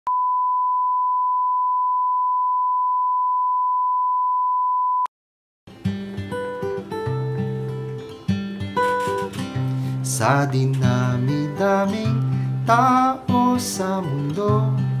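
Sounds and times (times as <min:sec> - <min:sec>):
acoustic guitar music: 0:05.7 - 0:15.0.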